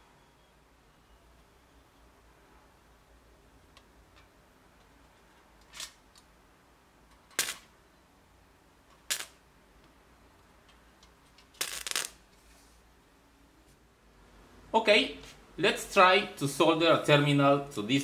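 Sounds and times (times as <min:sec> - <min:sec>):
electric arc snaps: 0:07.3 - 0:07.7, 0:09.0 - 0:09.4, 0:11.5 - 0:12.2.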